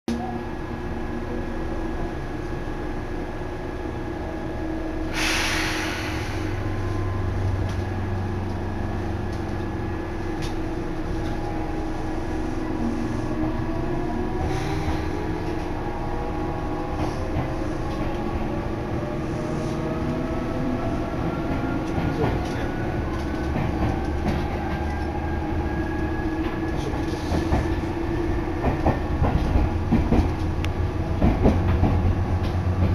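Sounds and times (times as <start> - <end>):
train running hum: 0.1 - 32.9
sharp hiss: 5.1 - 6.6.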